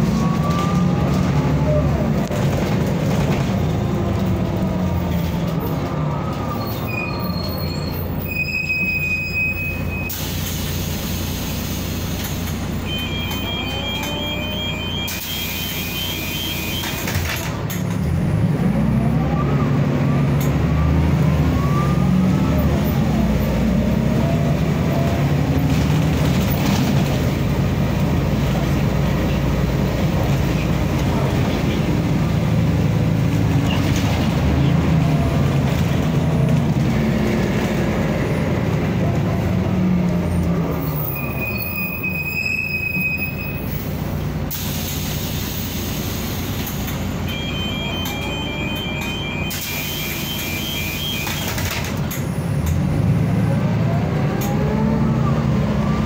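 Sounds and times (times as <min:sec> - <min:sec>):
bus diesel engine droning: 0:00.0 - 0:56.0
repeated beeps: 0:12.8 - 0:17.0, 0:47.3 - 0:51.6.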